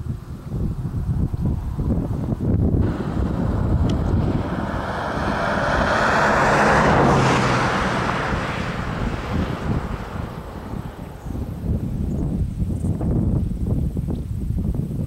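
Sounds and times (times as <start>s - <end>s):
wind rumble on microphone: 0.0s - 15.0s
road vehicle passing by: 0.8s - 12.3s.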